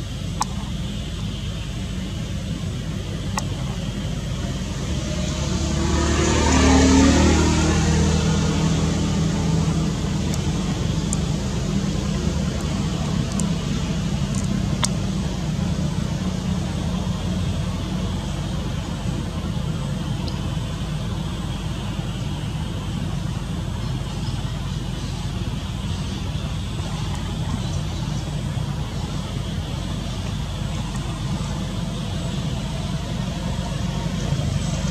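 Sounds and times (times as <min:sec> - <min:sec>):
broad rushing noise: 0:00.0 - 0:34.9
low engine hum: 0:00.0 - 0:34.9
faint clicks: 0:00.3 - 0:00.7, 0:14.3 - 0:15.0.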